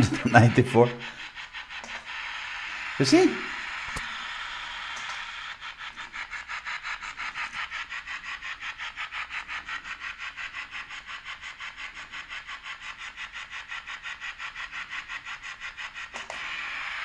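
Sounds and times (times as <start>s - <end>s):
radio interference pulsing buzz: 1.9s - 5.2s.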